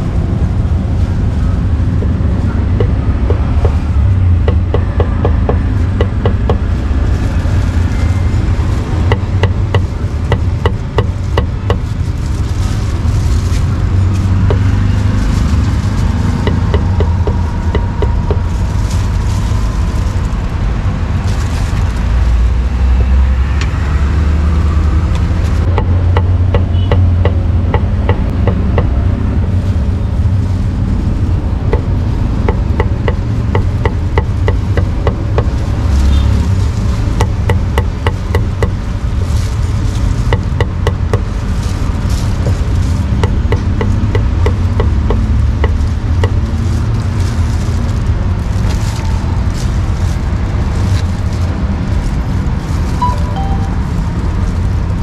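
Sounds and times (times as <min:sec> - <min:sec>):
steady low rumble: 0:00.0 - 0:43.8.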